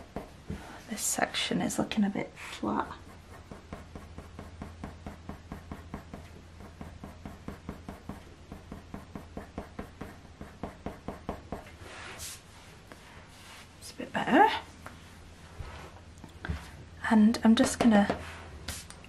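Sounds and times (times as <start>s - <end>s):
pencil scratching on paper: 2.7s - 11.8s.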